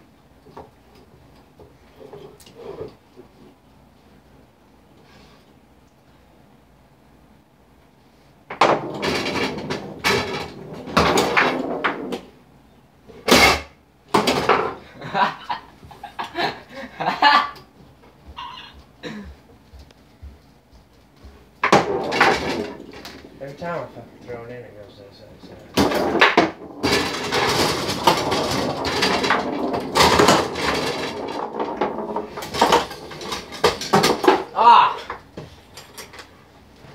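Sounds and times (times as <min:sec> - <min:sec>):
foosball ball and rods knocking: 0:08.5 - 0:12.4, 0:13.1 - 0:14.8, 0:21.6 - 0:23.8, 0:25.5 - 0:36.2.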